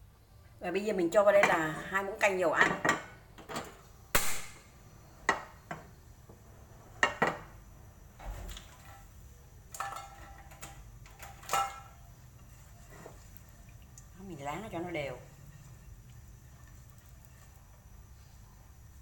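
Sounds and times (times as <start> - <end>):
kitchen utensils knocking and clinking: 7.0 - 7.5, 9.7 - 12.1.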